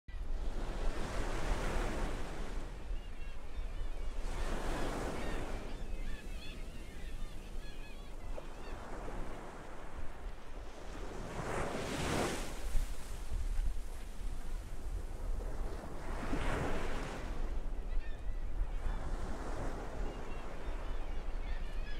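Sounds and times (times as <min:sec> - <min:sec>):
distant seagulls calling: 0:01.0 - 0:12.9, 0:15.4 - 0:21.9
ocean surf breaking: 0:10.9 - 0:13.4.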